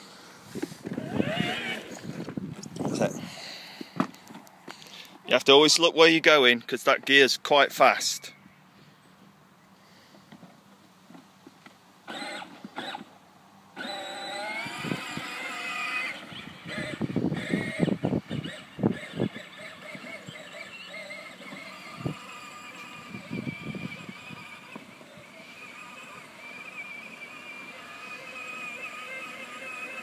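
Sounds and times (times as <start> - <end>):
electric toy tractor motor whine: 0.0 - 2.4, 12.0 - 13.1, 13.7 - 30.0.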